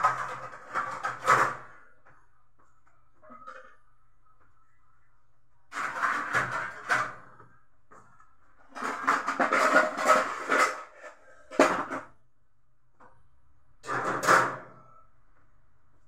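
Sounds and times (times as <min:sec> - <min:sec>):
pots and bowls knocking and scraping: 0:00.0 - 0:01.8, 0:05.7 - 0:07.5, 0:08.7 - 0:12.1.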